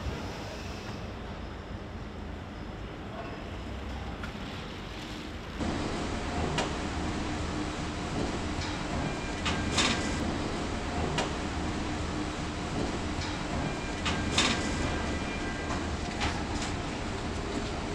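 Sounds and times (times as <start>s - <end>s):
steady machine hum: 5.4s - 17.9s.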